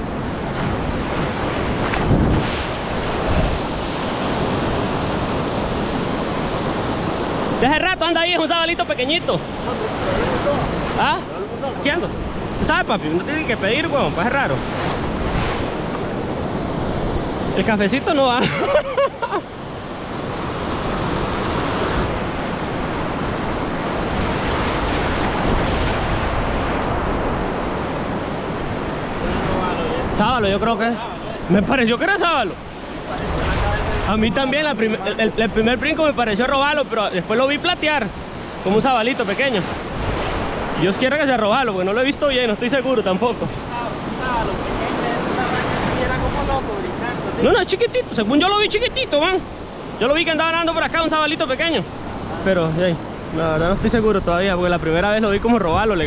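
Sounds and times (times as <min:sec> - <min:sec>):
ocean surf washing: 0:00.0 - 0:56.0
wind buffeting microphone: 0:00.5 - 0:03.8, 0:52.0 - 0:56.0.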